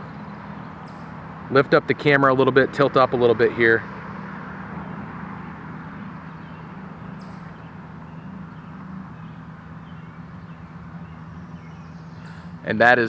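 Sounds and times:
low droning hum: 0:00.0 - 0:13.0
faint bird chirps: 0:06.0 - 0:12.8.

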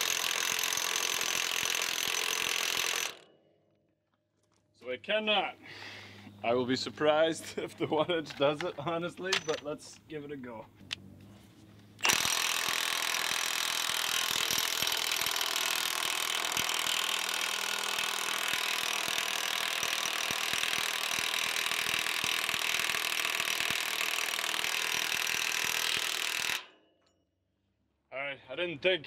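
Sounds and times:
impact wrench hammering on nut: 0:12.0 - 0:26.7.

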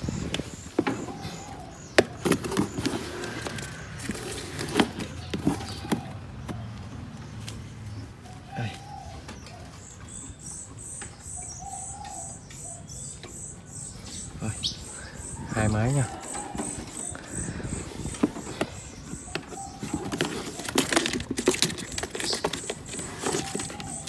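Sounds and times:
bird chirps: 0:00.0 - 0:24.0
sharp knocks and rattles: 0:16.1 - 0:24.0.

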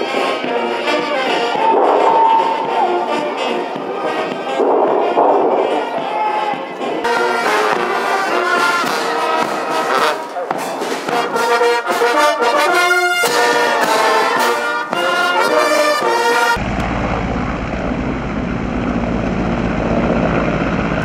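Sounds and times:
brass band playing a march: 0:00.0 - 0:16.6
helicopter rumble: 0:16.6 - 0:21.0.

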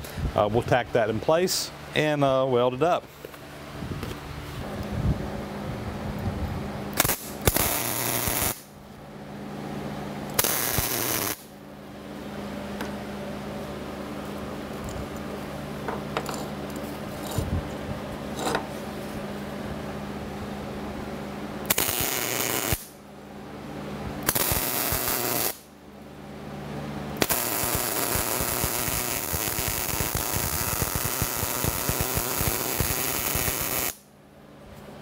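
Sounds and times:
short tack welds: 0:07.0 - 0:08.7, 0:10.3 - 0:11.5, 0:21.7 - 0:23.0, 0:24.2 - 0:25.7, 0:27.2 - 0:34.0
welding crackle: 0:07.0 - 0:08.7, 0:10.3 - 0:11.5, 0:21.7 - 0:23.0, 0:24.2 - 0:25.7, 0:27.2 - 0:34.0.

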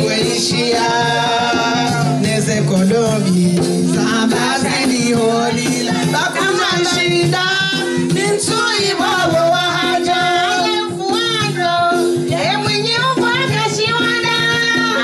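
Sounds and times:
women singing: 0:00.0 - 0:02.8, 0:03.5 - 0:15.0.

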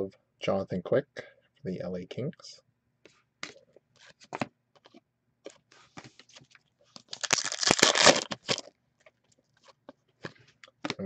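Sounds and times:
cards rustling and clicking: 0:03.4 - 0:11.0
foil wrapper tearing and crinkling: 0:07.0 - 0:08.7.

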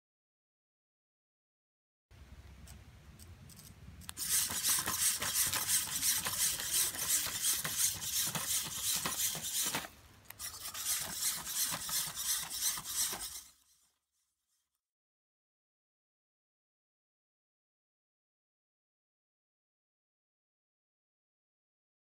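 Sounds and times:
servo motors whirring and grinding: 0:03.5 - 0:13.7.

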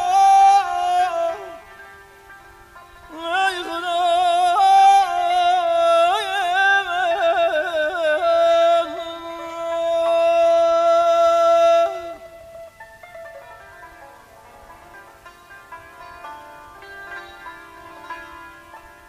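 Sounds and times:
man singing: 0:00.0 - 0:01.8, 0:03.1 - 0:12.5.

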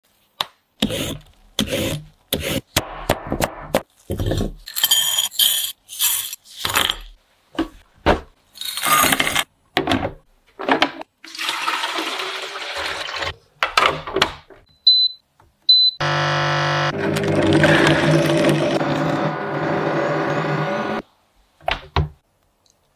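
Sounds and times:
water pouring into a jug: 0:11.2 - 0:13.3
blender motor humming: 0:16.0 - 0:21.0.

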